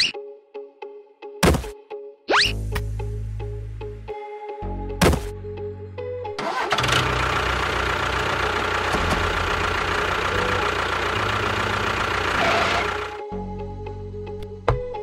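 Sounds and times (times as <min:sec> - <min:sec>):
tractor engine running: 0:06.4 - 0:13.2.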